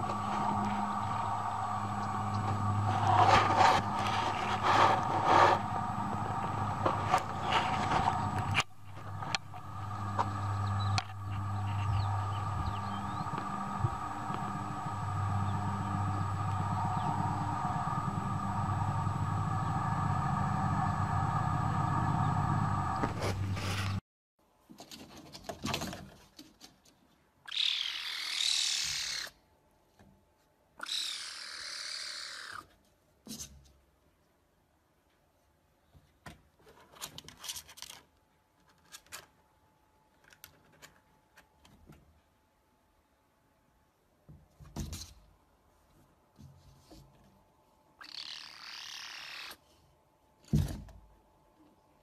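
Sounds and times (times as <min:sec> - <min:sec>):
steady hum: 0:00.0 - 0:24.0
kitten hissing: 0:27.5 - 0:29.4, 0:30.8 - 0:32.6, 0:48.0 - 0:49.6.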